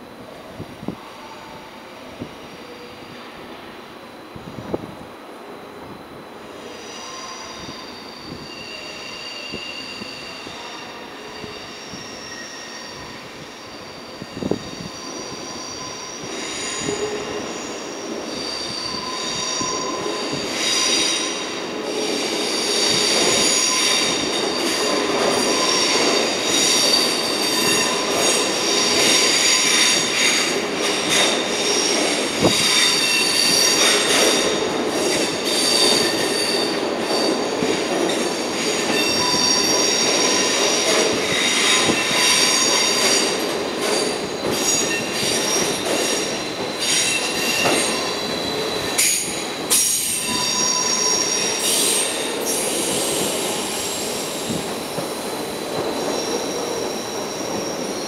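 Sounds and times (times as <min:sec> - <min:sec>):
train wheels squealing: 0:06.0 - 0:58.0.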